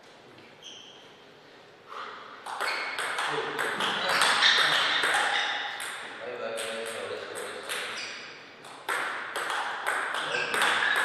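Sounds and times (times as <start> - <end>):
table tennis ball clicking: 8.6 - 11.0.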